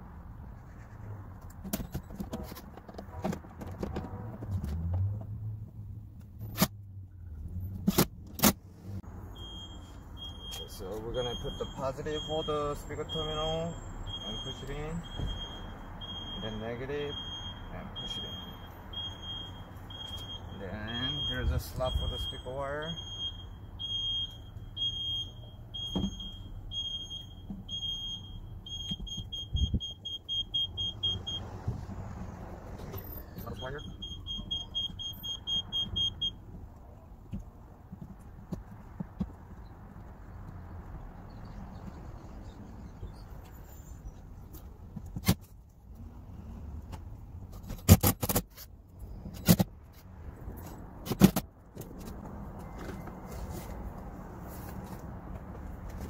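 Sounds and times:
car warning chime beeping: 9.3s - 31.5s, 33.0s - 36.4s.

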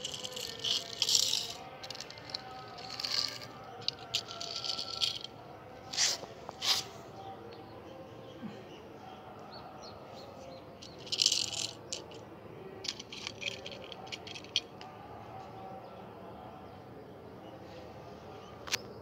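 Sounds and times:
toy cars clicking and rattling: 0.0s - 5.4s, 10.8s - 12.2s, 12.8s - 14.8s
toy car scraping on concrete: 0.0s - 7.0s, 10.8s - 12.2s, 12.8s - 14.7s.

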